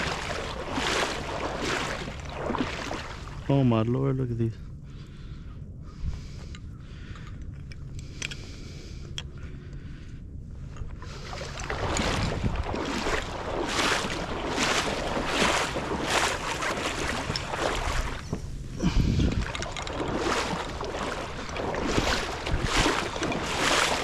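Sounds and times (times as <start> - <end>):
water sloshing from wading: 0.0 - 3.8, 4.8 - 24.0
wind on microphone: 4.9 - 24.0.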